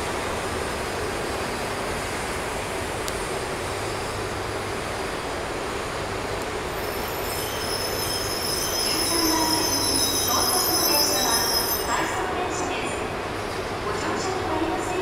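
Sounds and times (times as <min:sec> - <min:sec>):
train rolling with rumble: 0:00.0 - 0:15.0
high-pitched brake squeal: 0:06.8 - 0:12.0.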